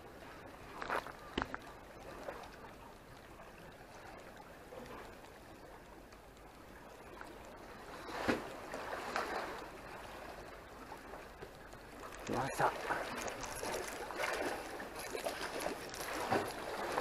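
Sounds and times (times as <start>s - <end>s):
water lapping against concrete: 0.0s - 17.0s
wave splash: 6.6s - 17.0s.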